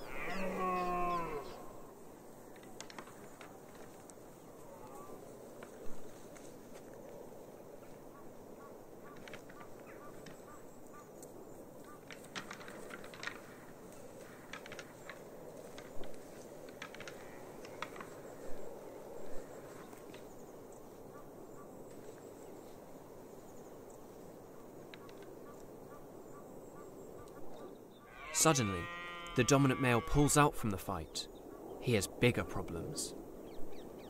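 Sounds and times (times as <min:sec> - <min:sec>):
antlers clacking together: 0:12.0 - 0:13.5, 0:14.4 - 0:15.9.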